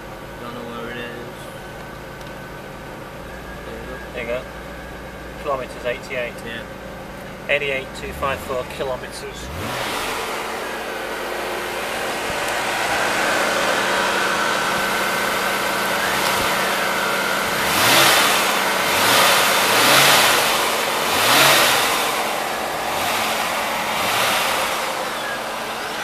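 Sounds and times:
car engine idling and revving: 0:00.0 - 0:26.0.

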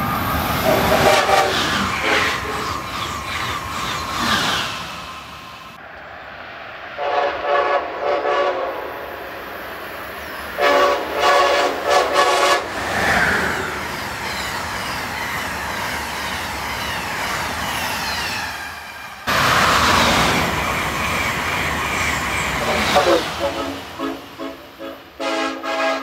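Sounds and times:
train rushing over rails: 0:00.0 - 0:26.0
train air horn blasts: 0:00.6 - 0:02.7, 0:07.0 - 0:08.9, 0:10.6 - 0:12.7, 0:22.6 - 0:26.0.

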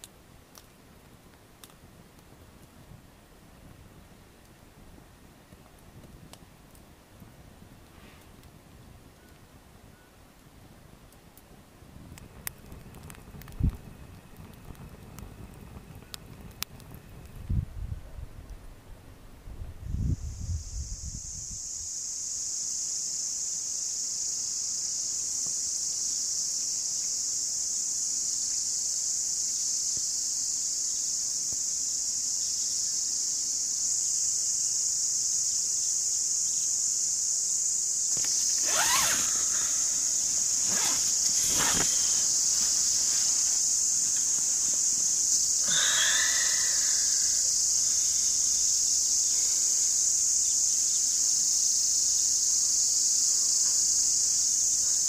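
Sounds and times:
crickets chirping: 0:19.8 - 0:55.0
short call: 0:45.7 - 0:47.5.

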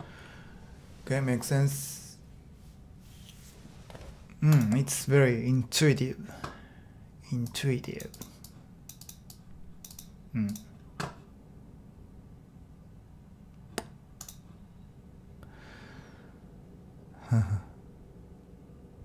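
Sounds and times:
mouse and keyboard clicks: 0:07.9 - 0:11.2, 0:13.8 - 0:14.4
murmured voice sounds: 0:17.2 - 0:17.8.

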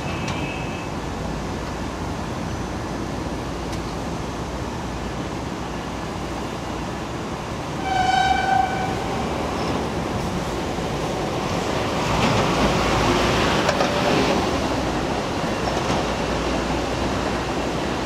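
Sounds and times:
train coaches rumbling on tracks: 0:00.0 - 0:18.0
train horn blast: 0:07.8 - 0:09.2.

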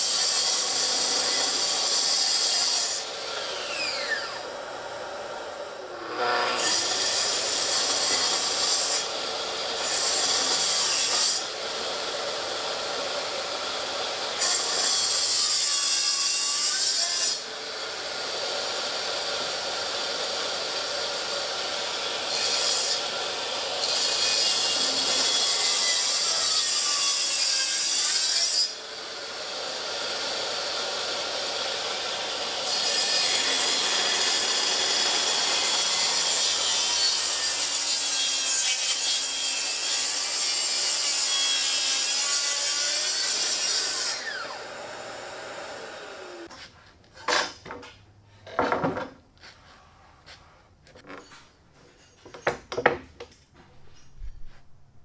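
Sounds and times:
track saw cutting wood: 0:00.0 - 0:46.5
wooden knocks: 0:48.5 - 0:49.2.

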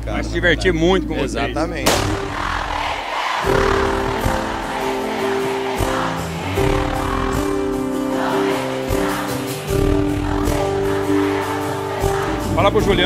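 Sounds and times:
keyboard chords: 0:03.4 - 0:13.0.

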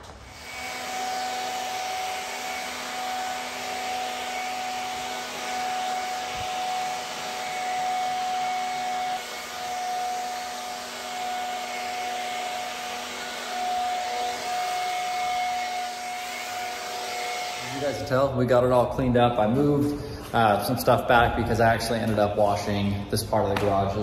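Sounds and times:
pressure washer whining: 0:00.0 - 0:18.3.

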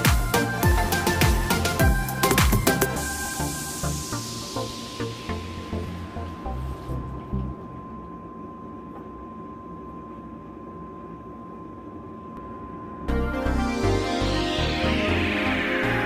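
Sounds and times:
background music: 0:00.0 - 0:07.6, 0:13.1 - 0:16.0
steady hiss: 0:01.5 - 0:07.1.

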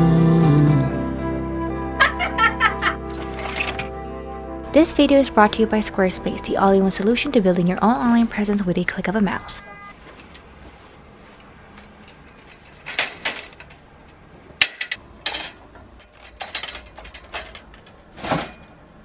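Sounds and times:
drying rack bars clacking: 0:14.6 - 0:18.8.

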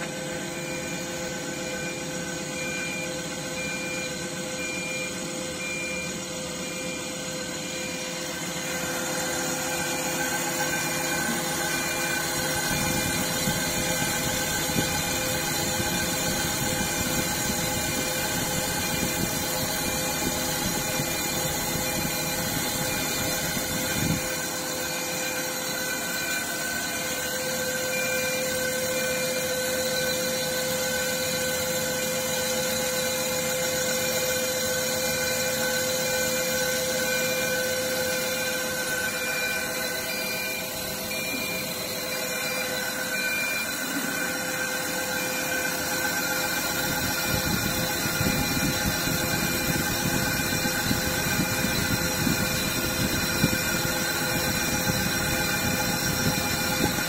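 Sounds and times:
lathe cutting noise: 0:00.0 - 0:57.0
lathe machine hum and whine: 0:00.0 - 0:57.0.

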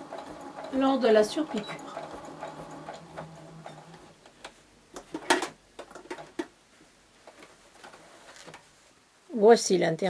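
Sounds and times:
fabric rustling: 0:06.7 - 0:09.0.

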